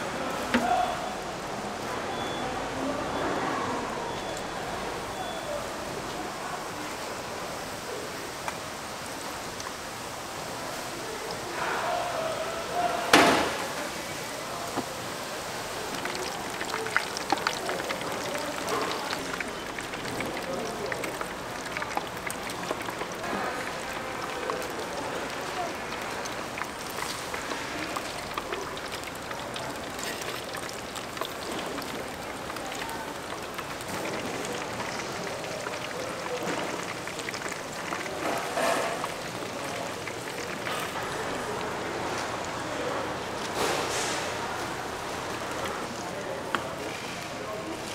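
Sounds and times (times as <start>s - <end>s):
oil sizzling in deep fryer: 0.0s - 47.9s.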